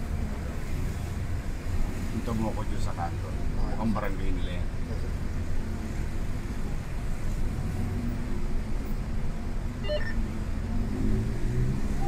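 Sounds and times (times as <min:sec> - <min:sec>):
car engine and road rumble: 0:00.0 - 0:12.0
short high beep: 0:09.8 - 0:10.2.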